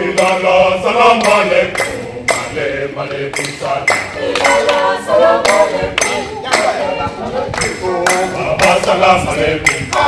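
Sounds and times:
choir singing a chant: 0:00.0 - 0:10.0
hand claps: 0:01.2 - 0:02.5, 0:03.3 - 0:06.8, 0:07.5 - 0:09.0, 0:09.6 - 0:10.0.

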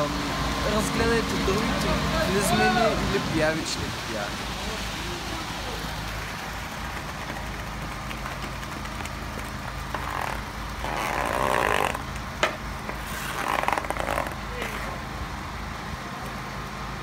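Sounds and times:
concrete mixer truck humming: 0:00.0 - 0:17.0
shovels scraping wet concrete: 0:09.8 - 0:12.0, 0:12.9 - 0:15.0.

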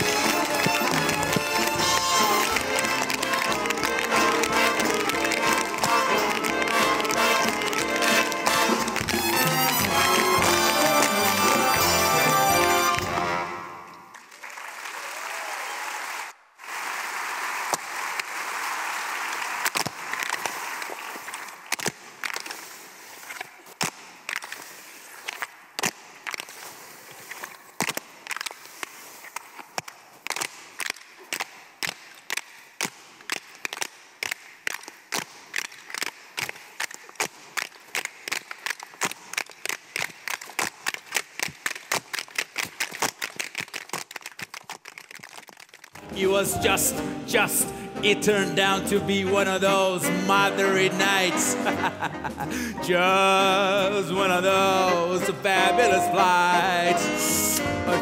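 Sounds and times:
orchestra music: 0:00.0 - 0:14.2, 0:46.0 - 0:58.0
audience applauding: 0:00.0 - 0:21.7.

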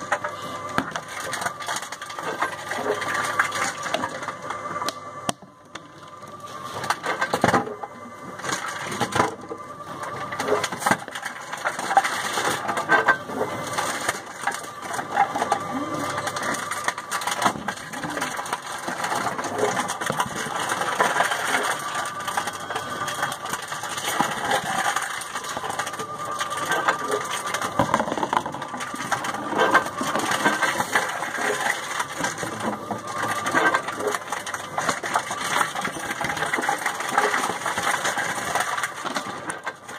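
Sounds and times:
motor whine: 0:00.0 - 0:37.2
plastic bottles crunching: 0:00.0 - 0:39.9.

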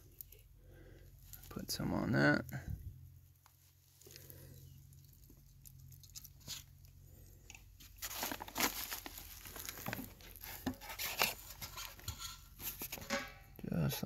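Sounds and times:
hands rustling plastic sheet: 0:07.8 - 0:13.1.

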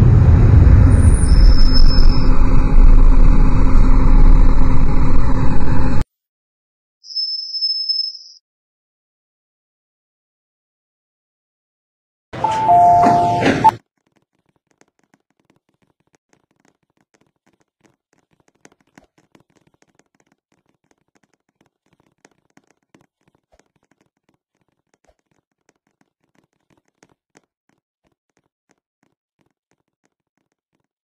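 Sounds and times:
two-tone chime: 0:12.4 - 0:13.7
faint clicks and taps: 0:14.0 - 0:31.0.

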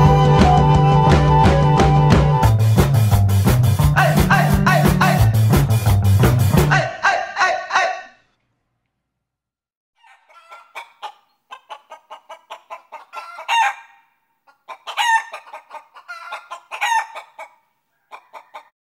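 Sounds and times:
hens clucking: 0:04.0 - 0:05.4, 0:06.7 - 0:08.1, 0:10.0 - 0:18.8
hen squawks: 0:06.7 - 0:08.2, 0:10.0 - 0:18.7.

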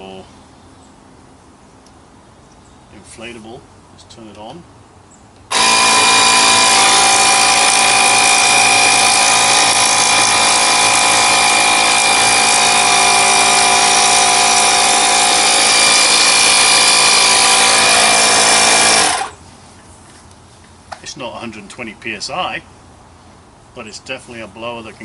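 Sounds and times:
inflator motor whine: 0:05.5 - 0:19.4.

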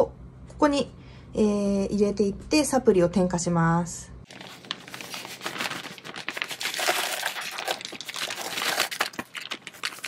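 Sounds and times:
plastic bag crinkling: 0:04.3 - 0:10.0.

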